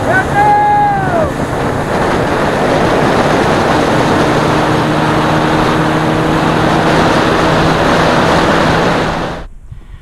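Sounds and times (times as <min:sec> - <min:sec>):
outboard motor running: 0:00.0 - 0:09.5
rushing water: 0:00.0 - 0:09.5
rushing wind: 0:00.0 - 0:10.0.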